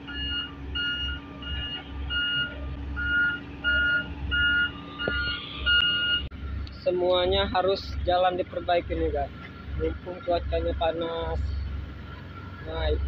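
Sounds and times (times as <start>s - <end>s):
backup alarm beeping: 0.0s - 6.3s
diesel engines rumbling: 0.0s - 13.0s.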